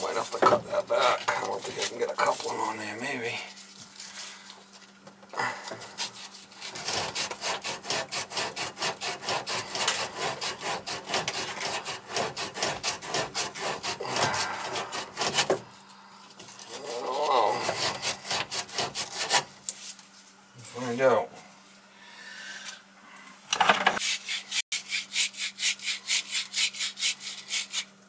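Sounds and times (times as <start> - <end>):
emery cloth rubbing copper pipe: 11.6 - 20.0.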